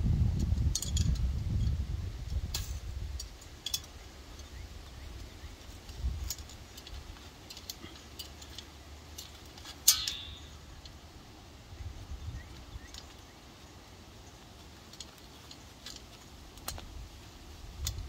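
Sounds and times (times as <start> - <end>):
barbed wire clinking: 0.4 - 11.4, 12.5 - 18.0
ringing metal clink: 7.5 - 10.6.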